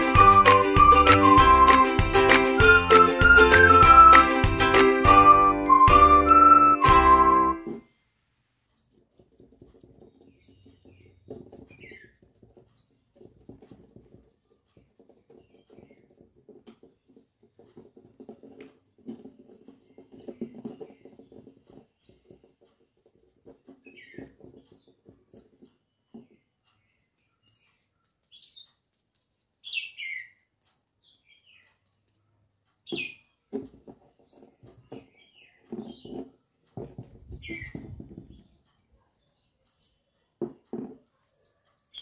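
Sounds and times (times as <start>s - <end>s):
background music: 0.0s - 7.8s
sponge dabbing paint on glass: 8.6s - 42.0s
bird chirps: 10.0s - 13.1s, 23.8s - 33.4s, 34.2s - 36.2s, 37.2s - 40.3s, 41.4s - 42.0s.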